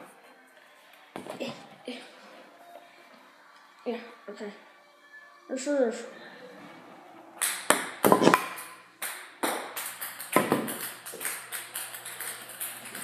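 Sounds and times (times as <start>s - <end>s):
ping-pong ball on paddle and table: 7.4s - 13.0s.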